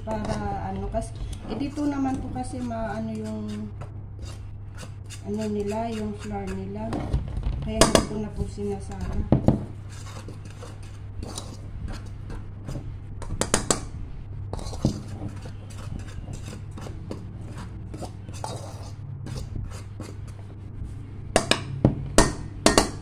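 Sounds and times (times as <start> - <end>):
hand stirring flour in metal pot: 0.0 - 7.0, 7.8 - 13.9, 14.5 - 21.6, 22.2 - 23.0
low hum: 11.0 - 23.0
clicks and taps on pot: 21.4 - 23.0.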